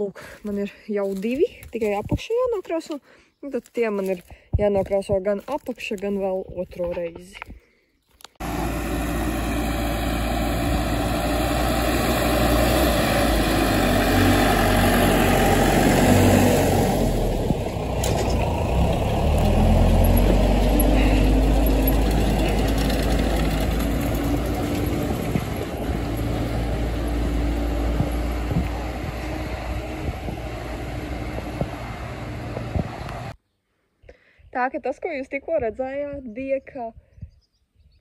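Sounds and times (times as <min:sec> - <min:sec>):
tractor diesel engine under load: 0:08.4 - 0:33.4.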